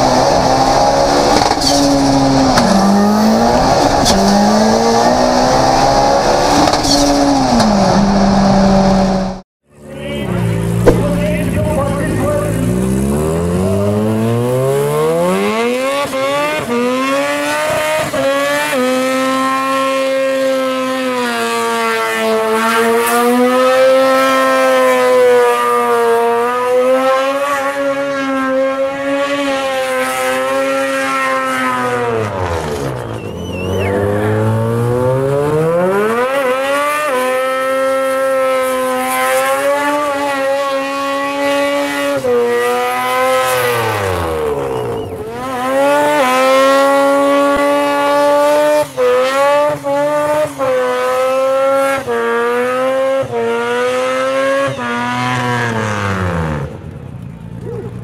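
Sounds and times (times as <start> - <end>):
rotary engine revving: 10.6 - 56.7.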